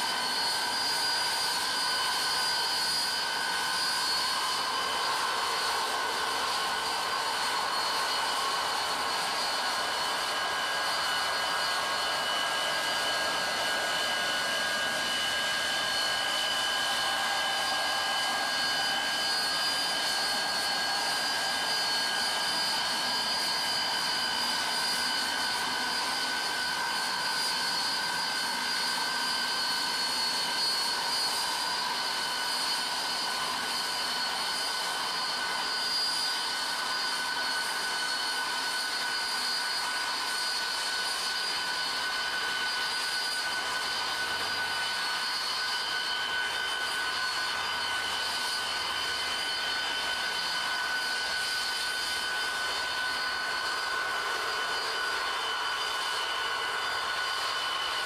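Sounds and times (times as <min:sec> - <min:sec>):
snow blower rushing noise: 0:00.0 - 0:38.2
high steady whine: 0:00.0 - 0:58.0.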